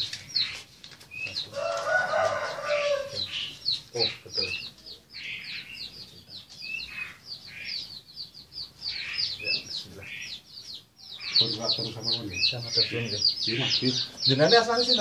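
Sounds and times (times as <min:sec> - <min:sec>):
caged birds chirping: 0:00.0 - 0:15.0
rooster crowing: 0:01.5 - 0:03.3.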